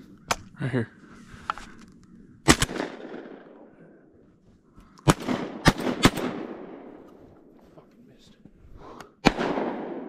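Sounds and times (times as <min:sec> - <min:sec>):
shotgun blasts: 0:02.4 - 0:03.7, 0:05.0 - 0:07.0, 0:09.2 - 0:10.0.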